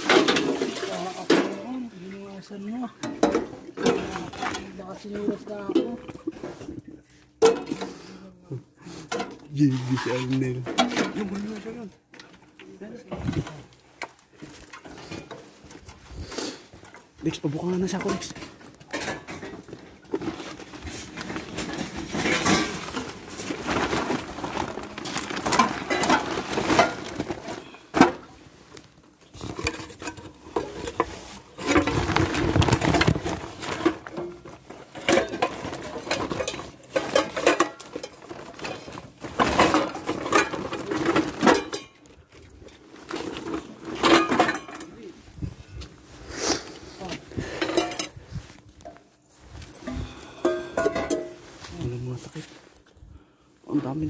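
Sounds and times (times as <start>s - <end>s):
pots and glass lids clinking: 0.0s - 1.7s, 7.4s - 8.0s, 17.9s - 20.6s, 21.4s - 28.3s, 29.3s - 42.1s, 43.0s - 45.0s, 47.5s - 48.2s, 49.8s - 51.4s
plastic bags rustling: 0.0s - 54.0s.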